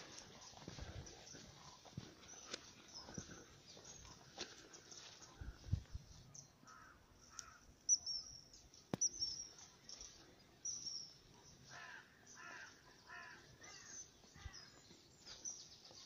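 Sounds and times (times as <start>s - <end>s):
small birds chirping and twittering: 0.0s - 16.0s
harsh caw-like bird calls: 6.6s - 7.7s, 11.6s - 14.8s.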